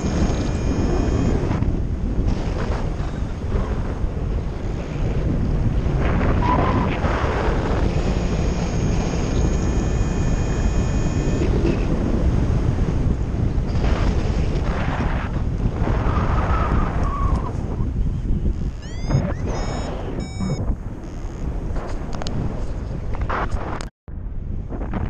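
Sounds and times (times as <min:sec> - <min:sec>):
wind buffeting microphone: 0:00.0 - 0:25.0
faint high tone: 0:08.0 - 0:11.8, 0:18.7 - 0:20.6.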